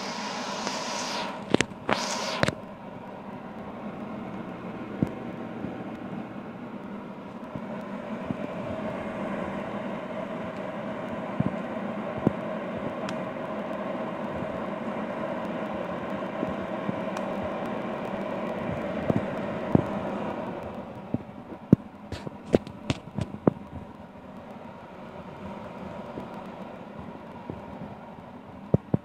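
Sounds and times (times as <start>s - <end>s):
hair dryer blower whirring: 0.0s - 21.6s.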